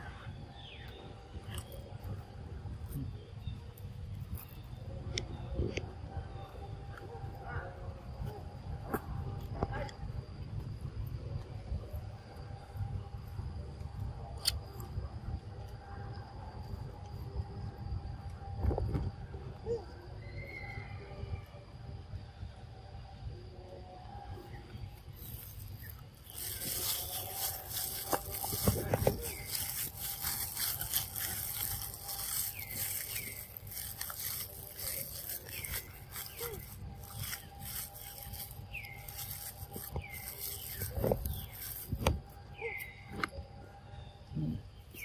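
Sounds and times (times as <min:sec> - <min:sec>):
rustling and crackling: 0:25.1 - 0:42.3.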